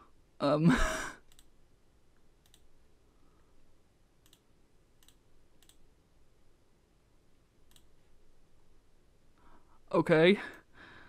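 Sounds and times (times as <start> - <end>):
computer clicks: 1.2 - 1.6, 2.4 - 2.8, 4.2 - 5.8, 7.6 - 8.0.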